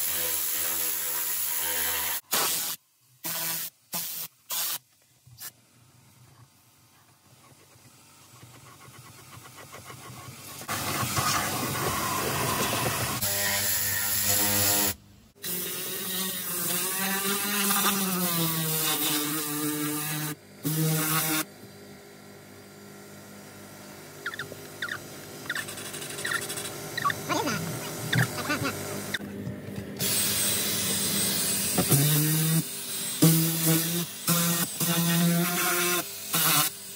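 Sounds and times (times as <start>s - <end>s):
small electric motor whining: 10.5s - 15.0s, 24.2s - 29.2s.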